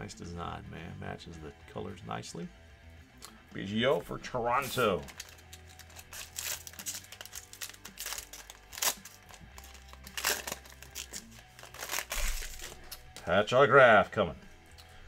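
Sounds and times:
soft background music: 0.0s - 15.0s
foil wrapper crinkling: 4.6s - 13.2s.

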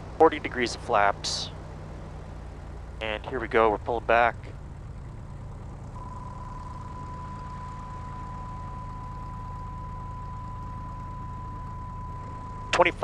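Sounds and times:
engine droning at idle: 0.0s - 13.0s
high-pitched warning horn: 6.0s - 13.0s.

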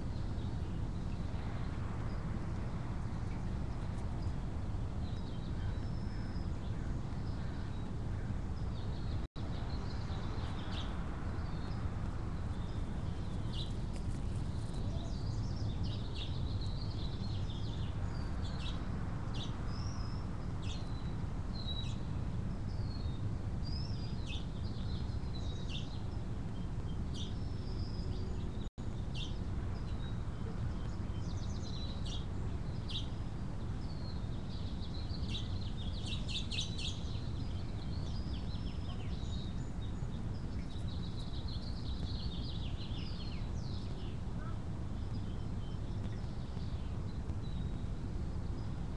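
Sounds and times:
birds chirping: 22.7s - 48.8s.

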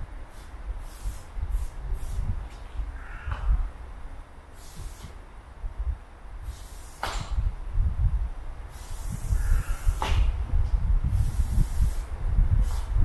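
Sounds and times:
steady low rumble: 0.0s - 13.0s
spray paint can hissing: 0.2s - 2.6s, 4.5s - 5.2s, 6.4s - 7.4s, 8.7s - 10.3s, 11.1s - 13.0s.

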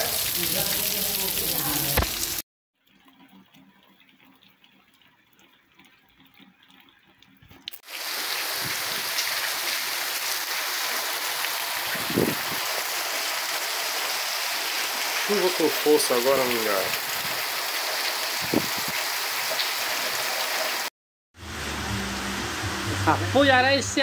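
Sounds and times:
heavy rain hissing: 7.9s - 23.7s.

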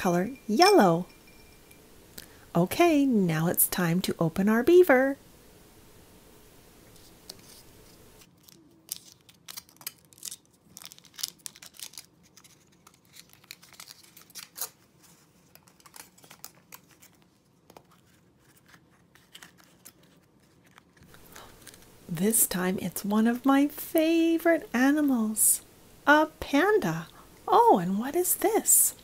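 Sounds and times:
foil wrapper crinkling: 8.2s - 21.9s
chocolate breaking: 8.3s - 14.8s.

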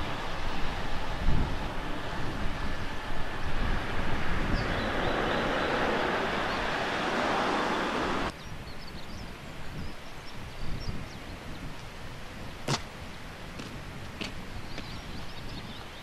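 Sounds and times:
steady rushing noise: 0.0s - 8.4s.

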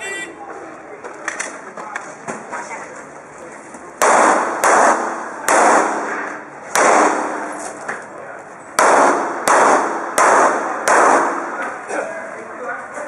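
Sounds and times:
pistol shots with echo: 4.0s - 7.6s, 8.8s - 11.8s.

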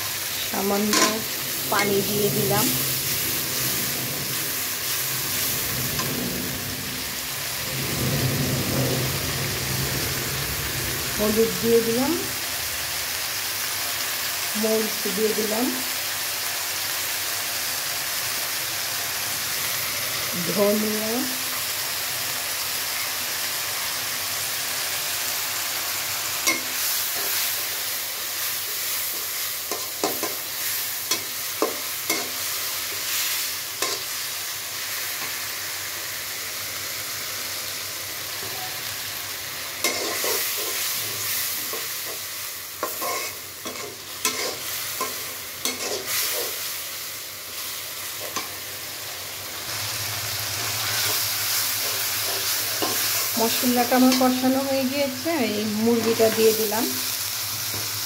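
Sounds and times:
masala sizzling in oil: 0.0s - 58.0s
metal spatula scraping a pan: 0.7s - 7.3s, 26.4s - 27.8s, 28.4s - 34.2s, 39.7s - 46.8s, 50.8s - 54.6s.

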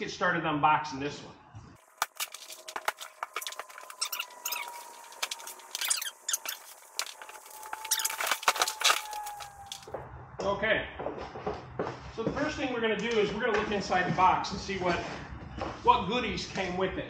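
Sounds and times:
plastic packaging crinkling: 1.8s - 9.9s.

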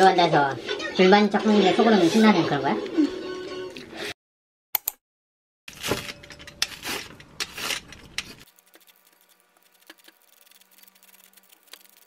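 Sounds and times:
book pages turning: 5.7s - 12.0s
cabbage shredded on hand slicer: 6.7s - 12.0s.

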